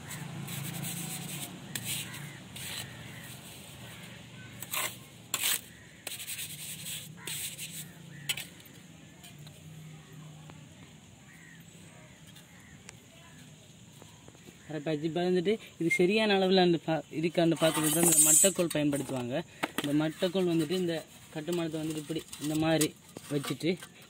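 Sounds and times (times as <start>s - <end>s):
trowel scraping wet mortar: 0.0s - 9.5s, 17.5s - 19.2s, 19.8s - 24.0s.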